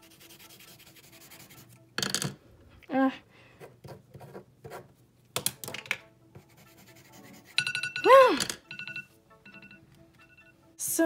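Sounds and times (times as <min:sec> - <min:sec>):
pencils set down on table: 0:02.0 - 0:02.4, 0:05.4 - 0:06.0
person exclaiming: 0:08.0 - 0:08.5
phone alarm beeping: 0:08.6 - 0:10.6.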